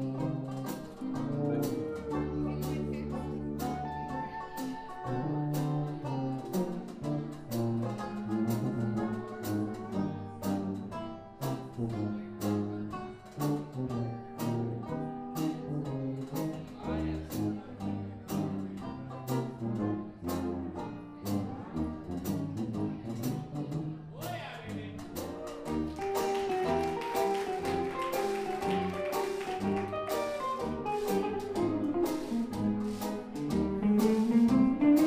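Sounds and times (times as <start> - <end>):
lap steel guitar: 0.0 - 6.5, 28.5 - 35.0
jazz band playing: 0.0 - 35.0
cymbals keeping a beat: 24.2 - 35.0.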